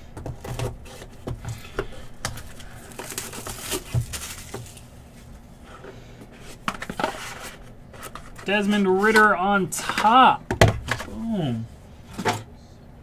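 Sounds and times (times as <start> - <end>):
plastic wrap crinkling and tearing: 2.4 - 5.0.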